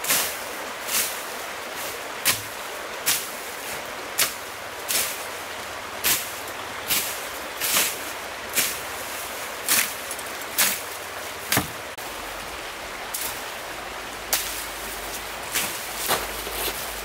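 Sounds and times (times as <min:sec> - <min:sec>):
shallow stream rushing: 0:00.0 - 0:17.0
brush snapping and rustling: 0:09.7 - 0:10.9, 0:14.3 - 0:17.0.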